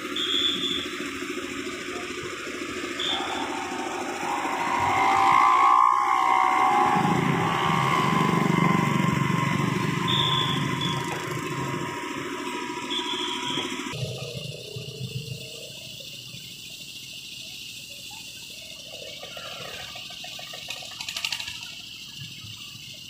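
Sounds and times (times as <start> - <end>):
excavator diesel engine under load: 0.0 - 15.6
hydraulic whine: 0.0 - 16.6.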